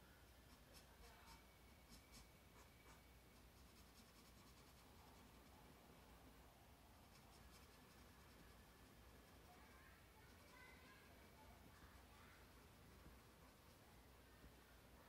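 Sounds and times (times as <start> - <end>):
marker scratching on paper: 0.4 - 5.5, 7.0 - 9.6.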